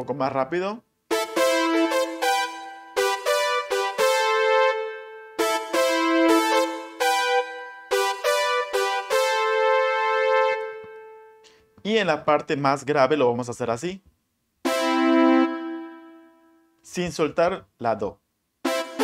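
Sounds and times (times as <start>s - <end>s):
synthesized brass keyboard melody: 1.1s - 11.6s, 14.6s - 16.8s, 18.6s - 19.0s.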